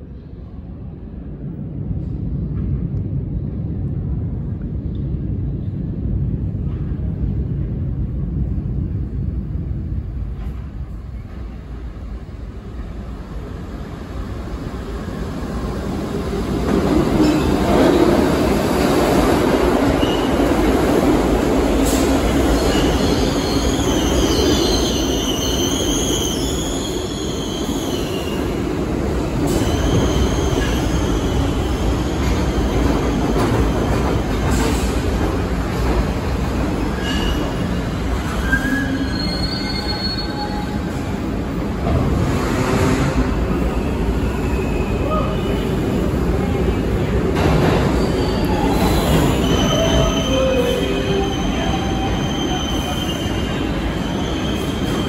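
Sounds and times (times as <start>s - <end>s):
subway train rumble: 0.0s - 55.0s
high-pitched brake squeals: 38.4s - 40.8s, 48.0s - 55.0s.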